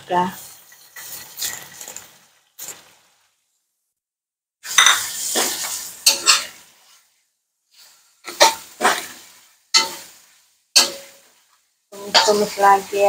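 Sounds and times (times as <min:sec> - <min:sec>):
metal spatula scraping a wok: 0:00.3 - 0:02.1, 0:04.6 - 0:07.1, 0:07.7 - 0:12.6
spatula clinking on wok: 0:06.0 - 0:06.6, 0:09.8 - 0:10.1, 0:10.8 - 0:11.3.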